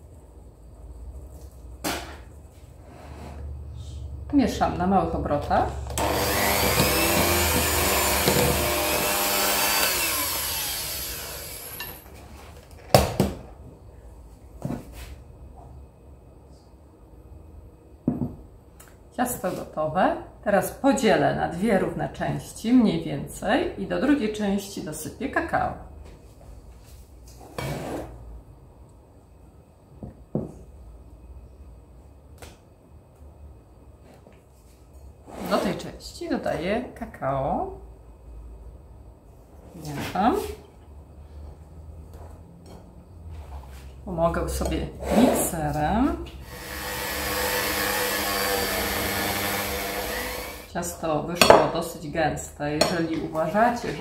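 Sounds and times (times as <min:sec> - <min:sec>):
electric hand mixer running: 0:05.9 - 0:12.0, 0:46.4 - 0:50.7
spatula scraping ceramic bowl: 0:44.6 - 0:45.8
mixer knocking on worktop: 0:51.4 - 0:51.8.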